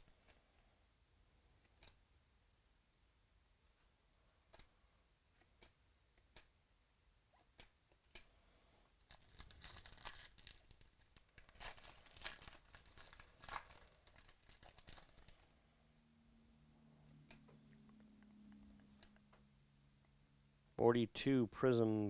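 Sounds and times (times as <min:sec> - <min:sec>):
foil wrapper tearing and crinkling: 0:09.1 - 0:15.5.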